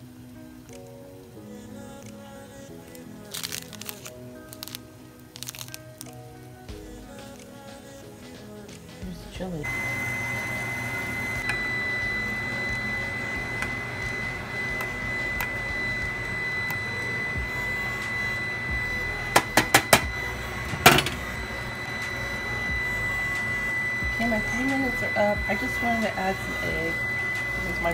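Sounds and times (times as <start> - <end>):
steady hum with high whine: 9.0 - 27.9.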